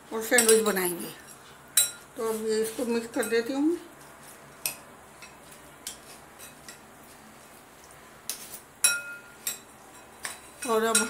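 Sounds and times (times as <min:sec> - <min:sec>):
spoons clinking against glass bowl: 0:00.2 - 0:02.1, 0:03.0 - 0:03.6, 0:08.3 - 0:11.0.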